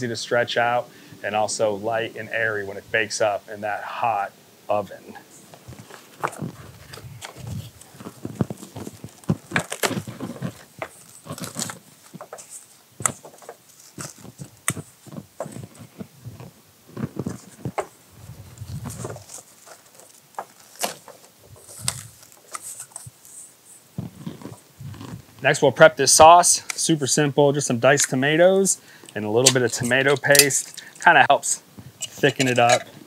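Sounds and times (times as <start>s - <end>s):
plastic cling film crinkling: 5.3s - 25.6s, 27.8s - 33.0s.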